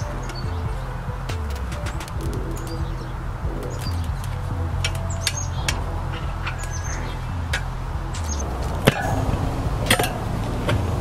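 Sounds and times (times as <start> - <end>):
tire irons clinking on metal: 0.0 - 11.0
sharp clicks: 1.3 - 2.9, 3.6 - 5.8.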